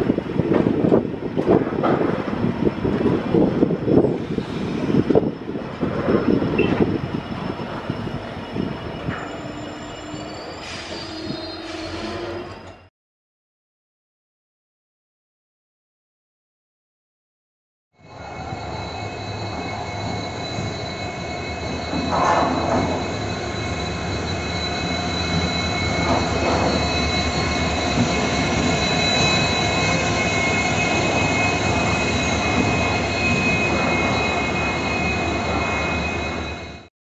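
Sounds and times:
diesel locomotive engine rumble: 0.0 - 12.9, 18.0 - 36.9
high-pitched wheel squeal: 3.4 - 12.9, 18.0 - 36.9.

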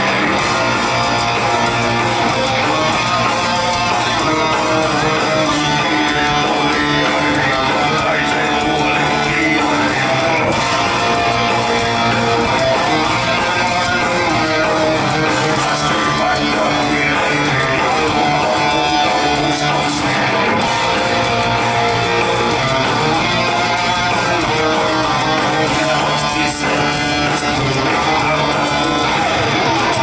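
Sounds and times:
bass guitar: 0.0 - 30.0
electric guitar: 0.0 - 30.0.

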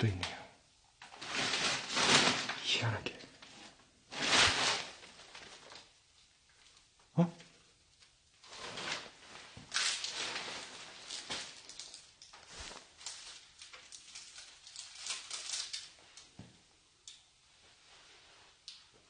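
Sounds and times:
plastic sheeting rustling: 1.1 - 2.9, 3.5 - 6.8, 8.4 - 16.3.

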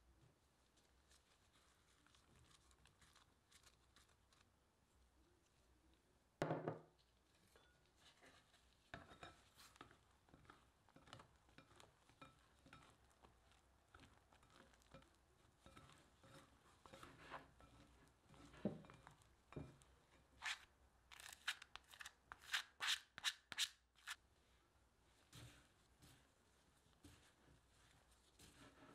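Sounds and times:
knock: 6.4 - 6.9
dough scrapers scraping in bowl: 15.6 - 18.6, 20.4 - 24.2.

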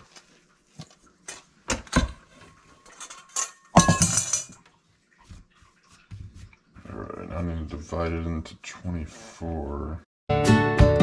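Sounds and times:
kitchenware knocks and clinks: 1.7 - 4.6
metallic clatter: 2.8 - 4.6.

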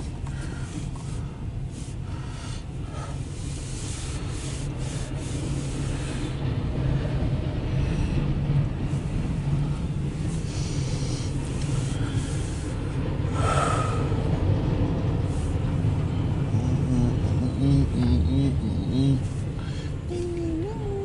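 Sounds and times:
train wheels rumbling on rail: 0.0 - 21.0
person humming: 16.5 - 21.0.

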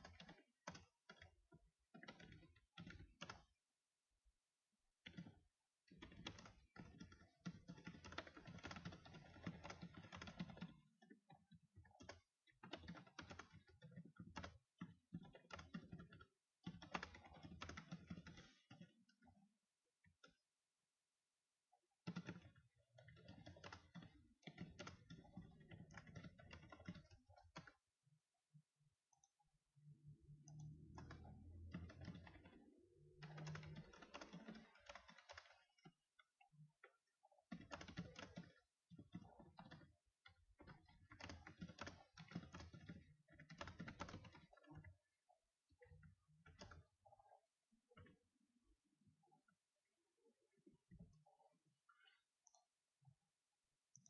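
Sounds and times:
typing on keyboard: 0.0 - 3.6, 5.0 - 20.5, 22.0 - 27.9, 30.1 - 45.1, 45.7 - 48.2.

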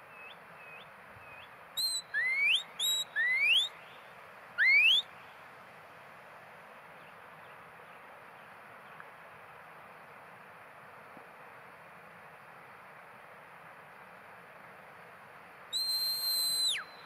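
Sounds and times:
shepherd's whistle commands: 1.8 - 3.7, 4.6 - 5.1, 15.8 - 17.0.

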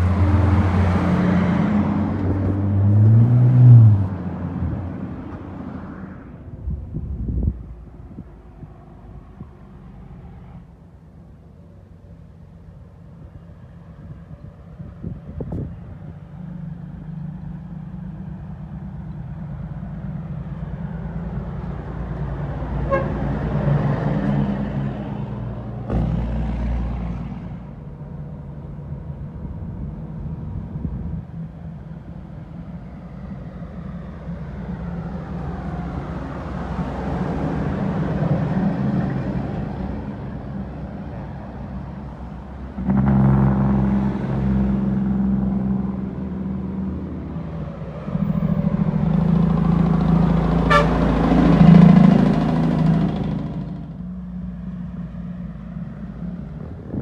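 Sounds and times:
diesel trucks driving past: 0.0 - 57.0
short horn toot: 22.9 - 23.2, 50.7 - 51.0.

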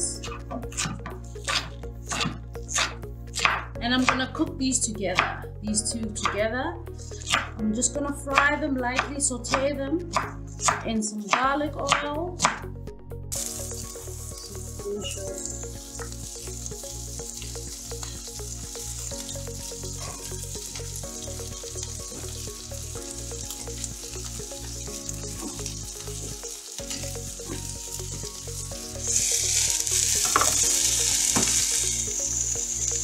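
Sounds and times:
background music with steady beat: 0.0 - 33.0
vegetables sizzling in a pan: 13.4 - 33.0.

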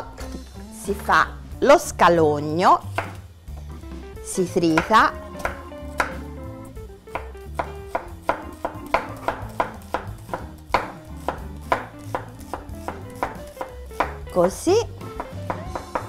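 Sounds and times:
background music: 0.0 - 16.0
knife chopping on wooden board: 2.9 - 3.7, 4.7 - 6.3, 7.1 - 16.0.

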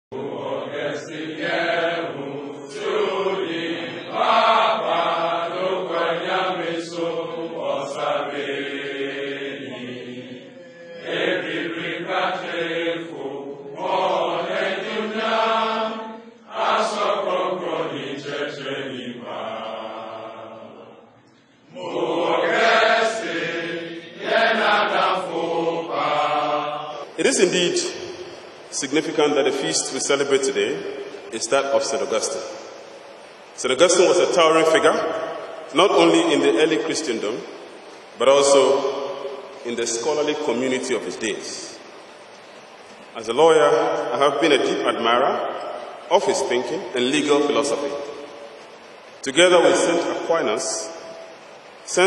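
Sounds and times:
voices chanting: 0.1 - 31.2.

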